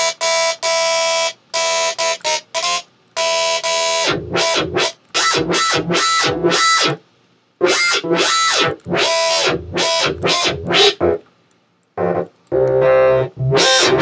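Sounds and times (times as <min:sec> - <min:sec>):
distorted synthesized bass: 0:03.6 - 0:07.0, 0:07.6 - 0:11.2, 0:12.0 - 0:14.0.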